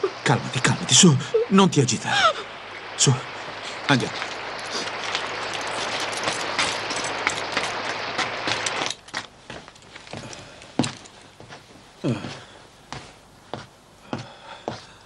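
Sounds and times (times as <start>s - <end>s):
heavy rain: 0.0s - 9.1s
wheelchair wheels on wet gravel: 3.0s - 12.2s
footsteps: 3.4s - 15.0s.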